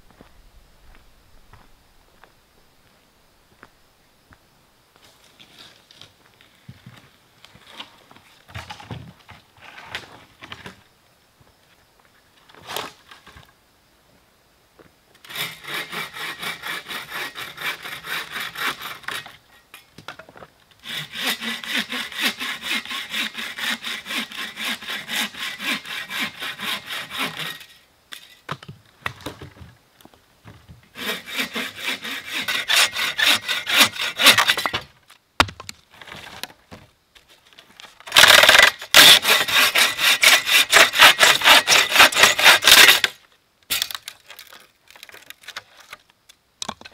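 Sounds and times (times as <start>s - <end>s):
bow saw cutting wood: 15.2s - 19.4s, 20.8s - 27.8s, 31.0s - 34.7s, 38.1s - 43.2s.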